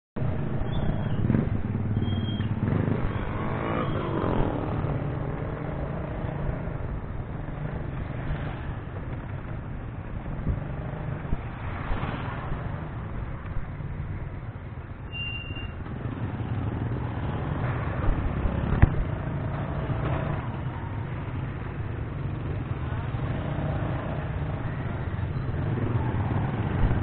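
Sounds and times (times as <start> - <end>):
motorcycles passing: 0.2 - 15.0, 15.7 - 27.0
traffic engine drone: 0.2 - 27.0.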